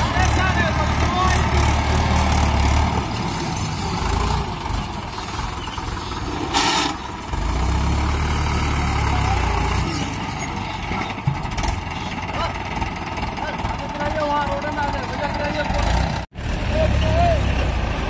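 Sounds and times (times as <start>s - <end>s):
tractor diesel engine under load: 0.0s - 18.0s.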